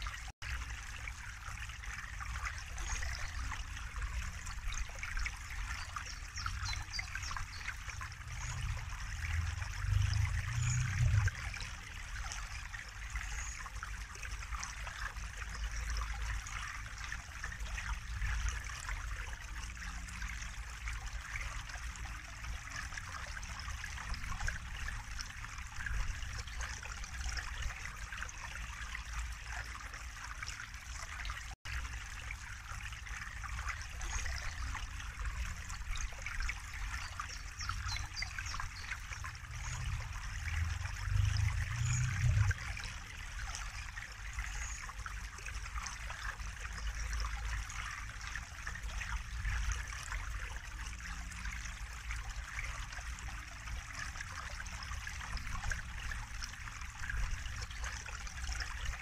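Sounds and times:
stream running over small cascade: 0:00.0 - 0:59.0
low rumble: 0:39.4 - 0:42.7.

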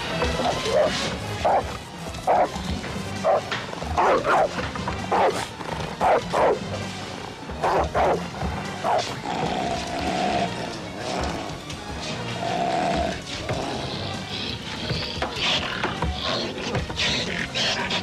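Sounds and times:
tense film score: 0:00.0 - 0:18.0
large dog barking: 0:00.2 - 0:06.8, 0:07.5 - 0:10.6.

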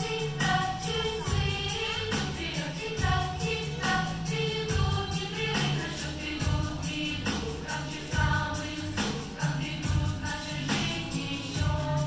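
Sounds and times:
choir singing over a beat: 0:00.0 - 0:12.0.

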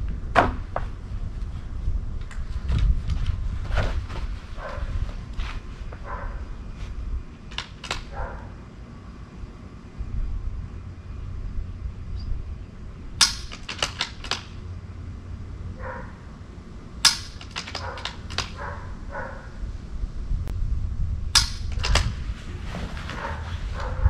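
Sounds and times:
sharp clicks: 0:07.5 - 0:08.1, 0:13.2 - 0:14.6, 0:17.0 - 0:18.6.

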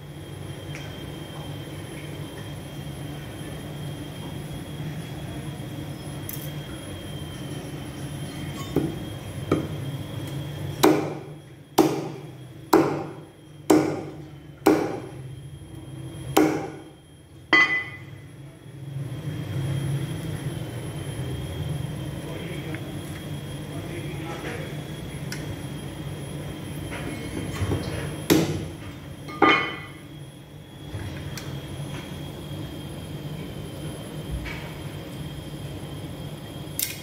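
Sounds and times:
cleaver chopping on wooden block: 0:11.8 - 0:12.1.

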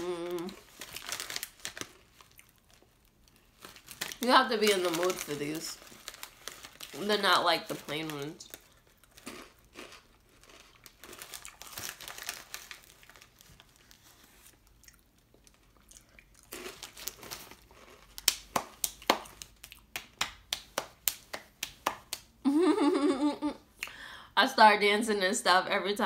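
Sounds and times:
crunching chips being chewed: 0:00.0 - 0:19.9
chip bag crinkling: 0:00.0 - 0:20.0.

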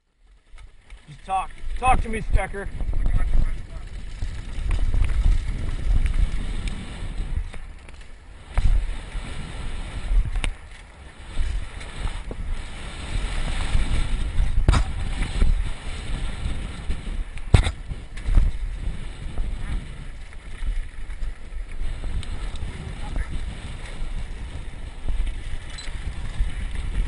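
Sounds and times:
bike tyres on dirt trail: 0:00.0 - 0:27.0
wind buffeting microphone: 0:00.5 - 0:27.0
bike knocks and rattles: 0:02.8 - 0:08.9, 0:13.2 - 0:27.0.

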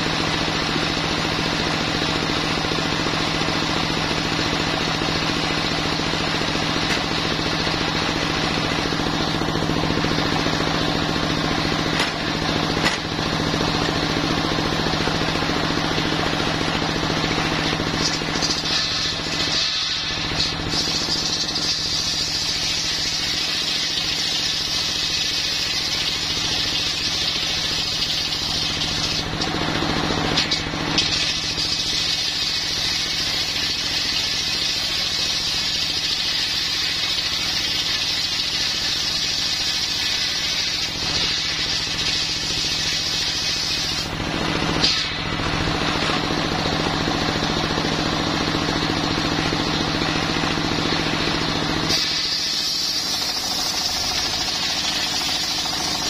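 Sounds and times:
diesel engine running: 0:00.0 - 0:56.0
circular saw blade cutting log: 0:10.5 - 0:46.2, 0:51.9 - 0:56.0.

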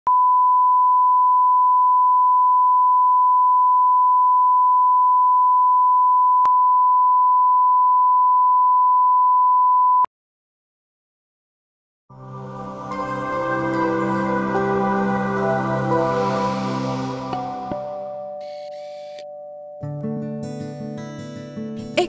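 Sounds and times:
steady pure reference tone: 0:12.1 - 0:19.8.

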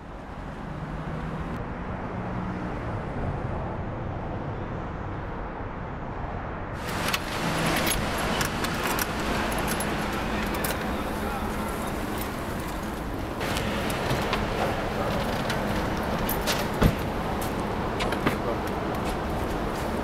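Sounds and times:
passing vehicles: 0:00.0 - 0:20.0
sharp clicks and rattles: 0:06.8 - 0:19.0.

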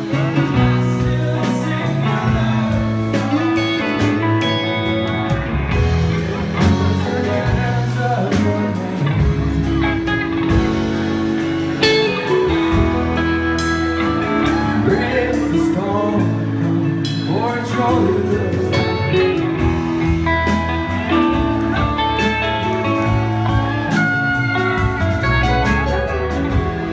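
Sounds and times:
electric bass: 0:00.0 - 0:26.9
electric guitars: 0:00.0 - 0:26.9
male lead vocal: 0:00.0 - 0:26.9.

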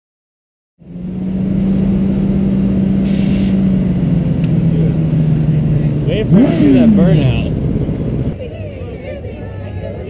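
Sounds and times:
motorcycle engine revving high: 0:00.8 - 0:08.4.

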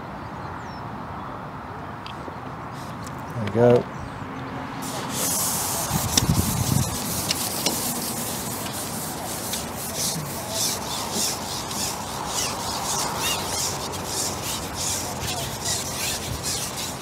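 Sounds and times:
fishing pole scraping swishes: 0:04.8 - 0:17.0.

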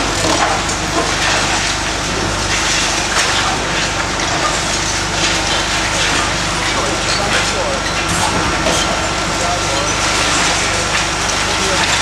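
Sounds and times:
excavator engine drone: 0:00.0 - 0:12.0.

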